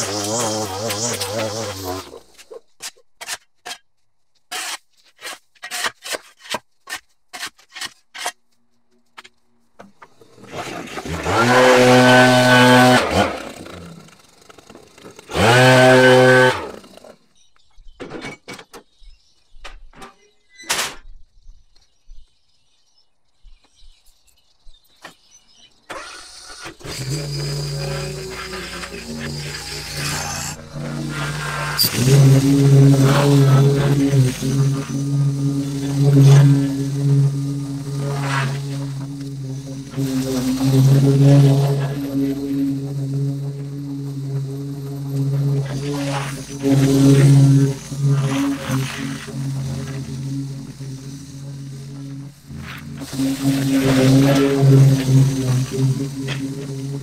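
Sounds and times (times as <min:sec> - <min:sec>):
mower engine running: 0:00.0 - 0:02.4, 0:10.0 - 0:17.2, 0:25.9 - 0:57.0
leaf blower revving: 0:00.0 - 0:02.5, 0:10.0 - 0:17.2, 0:25.9 - 0:57.0.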